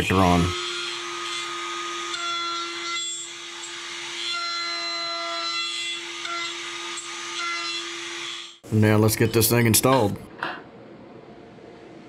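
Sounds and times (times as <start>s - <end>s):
router humming: 0.0s - 8.6s
router bit whining in wood: 0.2s - 8.6s.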